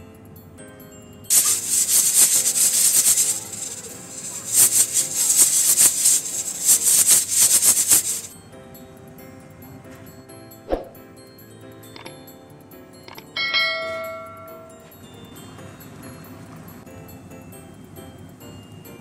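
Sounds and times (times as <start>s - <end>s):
background music: 0.0s - 19.0s
pressure cooker hissing steam: 1.3s - 8.4s.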